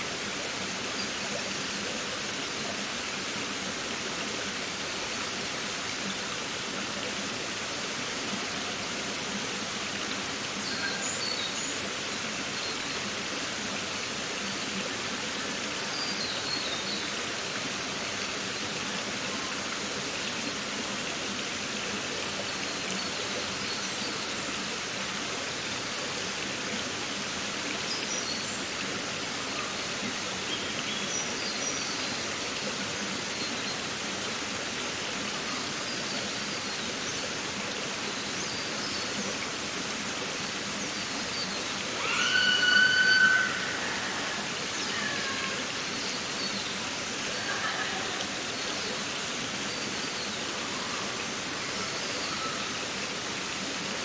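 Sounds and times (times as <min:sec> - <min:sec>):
stream running: 0:00.0 - 0:54.0.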